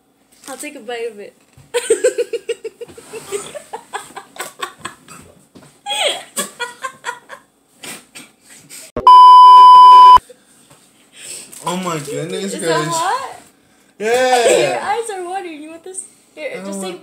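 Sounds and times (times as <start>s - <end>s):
test-tone beep: 9.0s - 10.2s.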